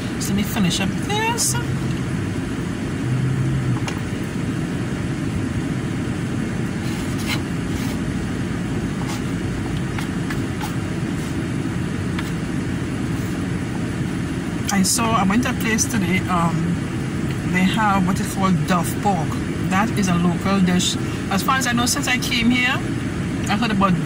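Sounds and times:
car cabin rumble: 0.0s - 16.5s.

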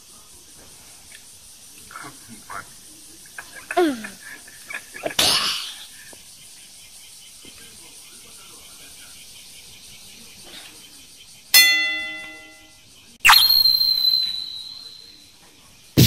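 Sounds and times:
person coughing: 5.2s - 5.8s
bell-like ding: 11.6s - 12.7s, 13.3s - 15.1s.

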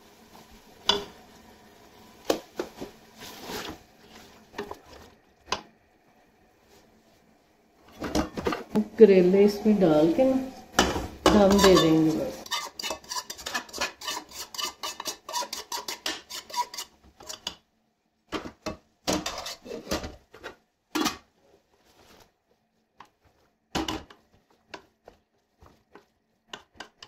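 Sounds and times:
metal spoon scraping a pan: 10.9s - 17.6s, 19.1s - 21.2s.

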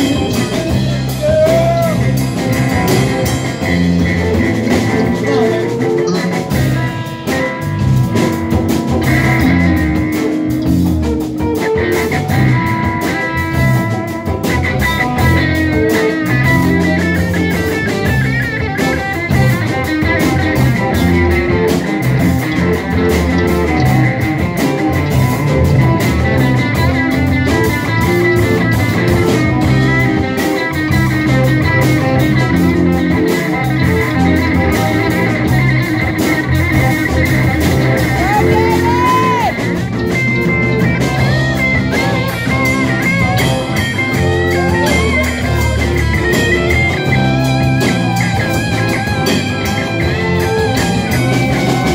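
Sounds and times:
drum kit beat: 0.0s - 51.9s
electric bass: 0.0s - 51.9s
electric guitars: 0.0s - 51.9s.

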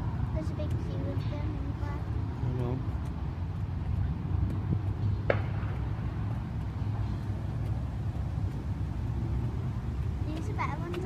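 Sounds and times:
distant car engines rumbling: 0.0s - 11.0s.

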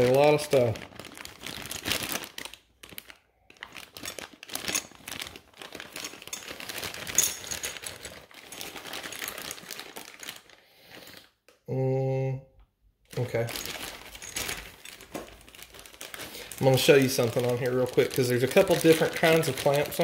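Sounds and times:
plastic bags crinkling: 0.0s - 11.4s, 13.1s - 20.0s.

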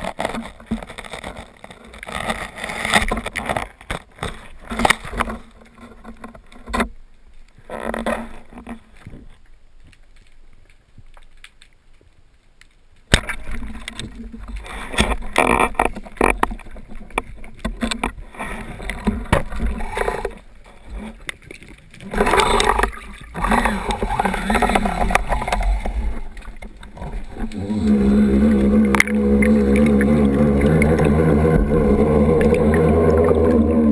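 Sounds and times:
sharp underwater clicks and knocks: 0.0s - 33.9s
underwater water rushing: 13.2s - 33.9s.

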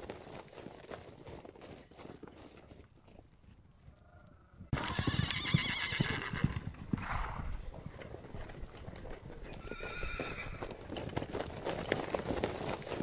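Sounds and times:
hooves thudding on snow: 0.0s - 4.0s, 6.0s - 13.0s
horse whinnying: 4.7s - 7.6s, 9.5s - 10.8s.

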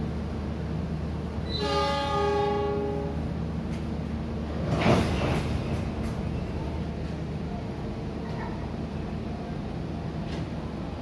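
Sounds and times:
locomotive horn blast: 1.5s - 3.2s.

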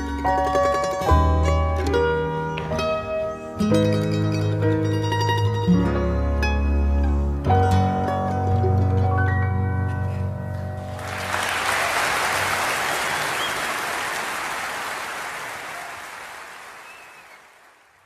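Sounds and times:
piano music: 0.0s - 11.6s
audience applauding: 10.9s - 18.0s.

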